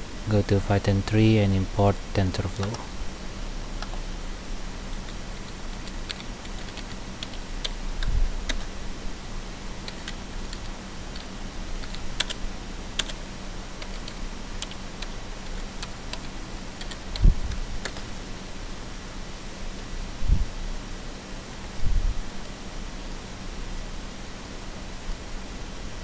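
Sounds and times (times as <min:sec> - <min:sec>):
steady low hum: 0:00.0 - 0:26.0
keyboard typing: 0:04.9 - 0:08.7, 0:09.8 - 0:12.4, 0:13.0 - 0:13.2, 0:13.8 - 0:18.1.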